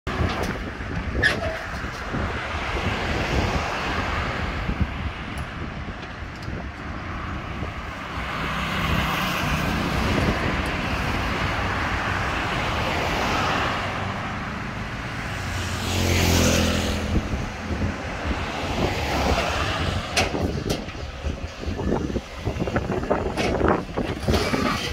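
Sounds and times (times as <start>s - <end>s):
road traffic: 0.0s - 24.9s
vehicle passing close by: 7.2s - 24.9s.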